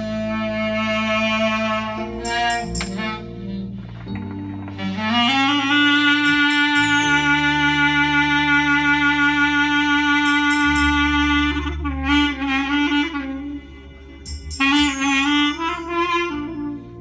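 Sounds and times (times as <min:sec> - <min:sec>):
clarinet improvising: 0:00.0 - 0:17.0
low held notes: 0:00.0 - 0:17.0.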